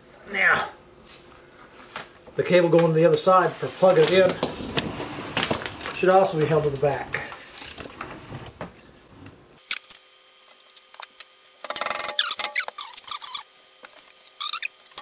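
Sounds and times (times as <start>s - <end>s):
cord scraping and squeaky rubbing: 3.9s - 6.0s, 12.0s - 13.5s, 14.3s - 15.0s.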